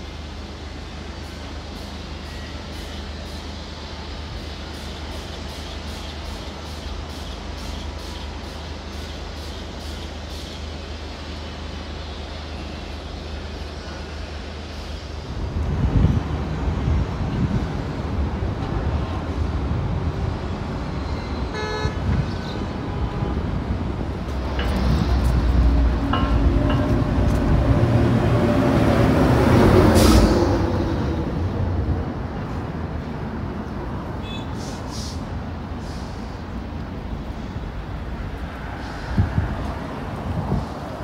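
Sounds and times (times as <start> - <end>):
street traffic rumble: 0.0 - 41.0
vehicle horn toot: 21.2 - 22.7, 34.2 - 34.5.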